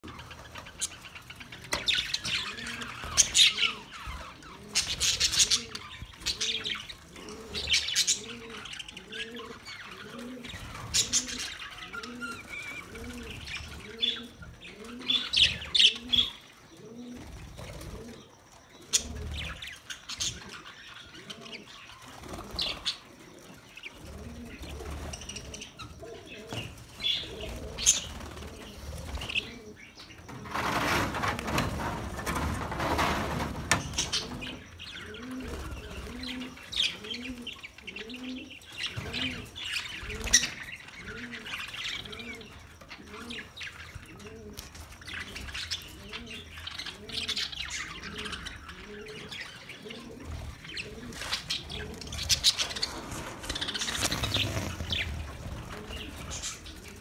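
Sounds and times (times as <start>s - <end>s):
budgerigars chirping and chattering: 0.0s - 16.8s, 33.0s - 57.0s
wings fluttering: 30.2s - 36.8s, 50.3s - 57.0s.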